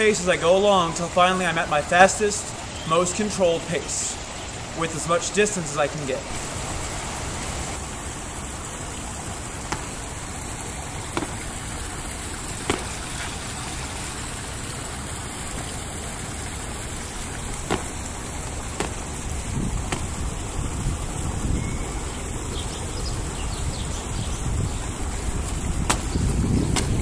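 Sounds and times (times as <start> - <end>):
rushing background noise: 6.0 - 27.0
sneakers landing on stone: 9.6 - 13.6, 17.0 - 20.4, 25.8 - 27.0
wind buffeting microphone: 17.1 - 27.0.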